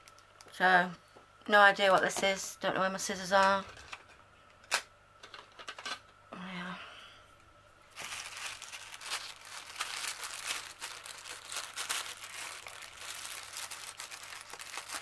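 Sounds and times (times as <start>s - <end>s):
plastic bag crinkling: 7.9s - 15.0s.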